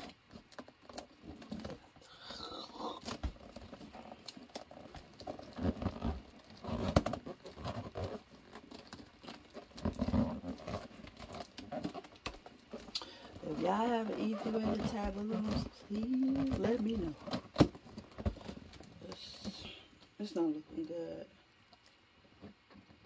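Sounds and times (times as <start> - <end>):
balloon rubbing and crinkling: 0.0 - 21.3.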